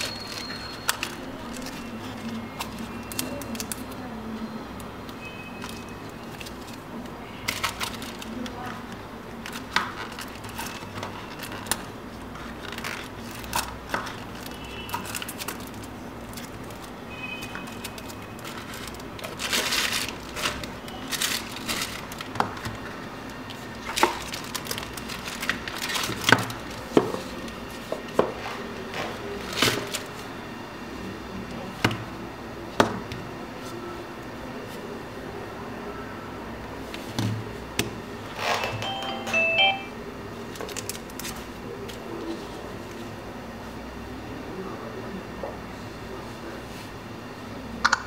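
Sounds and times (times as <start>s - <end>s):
packaging rustling: 0.0s - 3.9s, 7.4s - 28.1s.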